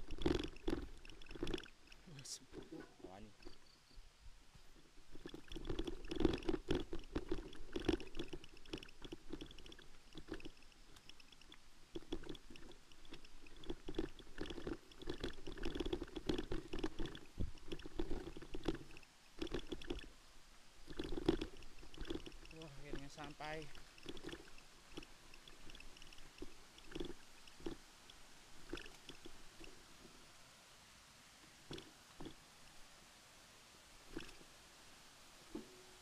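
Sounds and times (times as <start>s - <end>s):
bicycle rattling on dirt trail: 0.0s - 2.0s, 4.6s - 20.1s, 20.8s - 27.8s.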